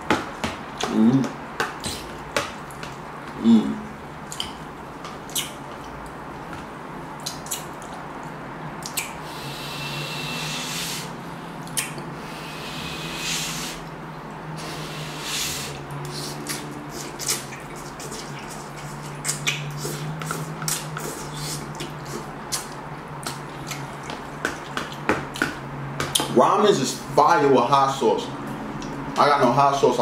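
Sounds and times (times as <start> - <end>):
wet mouth sounds: 0.8 - 4.6, 5.3 - 6.1, 7.2 - 26.3
person slurping noodles: 9.2 - 11.2, 12.2 - 13.9, 14.6 - 22.3.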